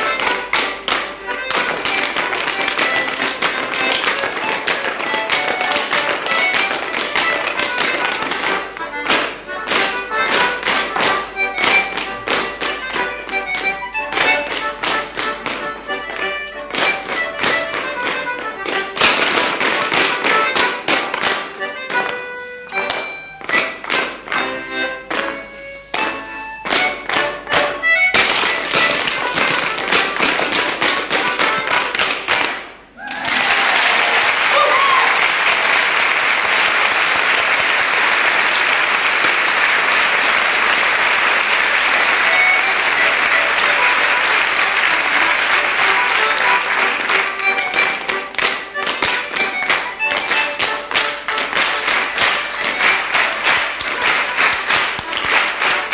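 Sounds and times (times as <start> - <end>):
clogs striking the floor: 0.0 - 25.2
fiddle music: 0.0 - 32.6, 34.0 - 55.9
clogs tapping dance steps: 0.0 - 32.9, 34.5 - 55.9
hornpipe music: 40.2 - 55.9.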